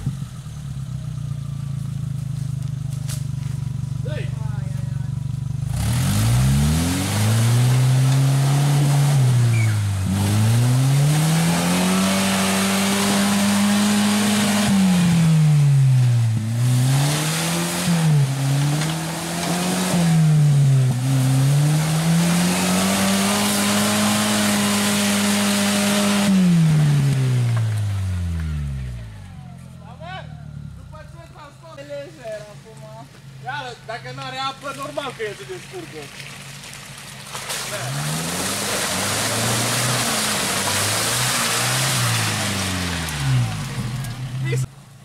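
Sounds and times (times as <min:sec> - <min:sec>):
car engine revving: 0:00.0 - 0:31.8, 0:33.3 - 0:44.9
tyres churning mud: 0:34.5 - 0:44.7.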